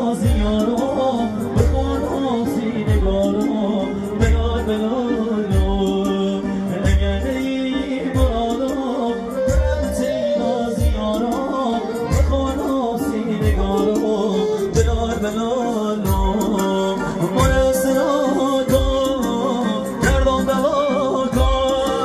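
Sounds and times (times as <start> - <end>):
folk dance music over loudspeakers: 0.0 - 22.0
heavy drum beat: 0.0 - 22.0
person singing: 0.0 - 22.0.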